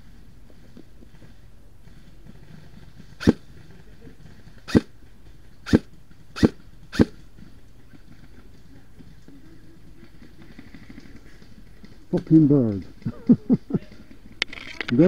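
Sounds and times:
airsoft rifle shots: 3.2s - 3.4s, 4.7s - 4.9s, 5.6s - 7.2s.

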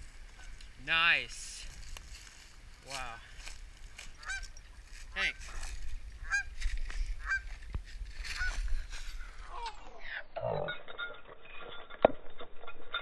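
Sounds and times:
geese honking: 0.3s - 0.6s, 4.0s - 7.6s, 8.2s - 9.4s.

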